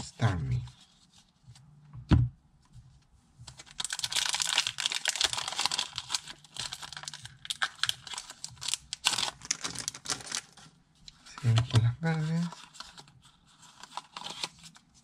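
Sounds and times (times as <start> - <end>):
thump on tabletop: 2.0 - 2.3
cards and packaging crackling: 3.5 - 15.0.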